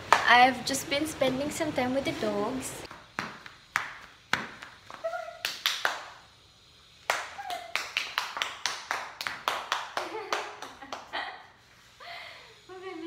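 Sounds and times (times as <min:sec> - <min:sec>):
hand claps: 0:00.1 - 0:00.3, 0:03.2 - 0:06.2, 0:07.0 - 0:11.2
flip-flops slapping on tiled floor: 0:02.9 - 0:06.1.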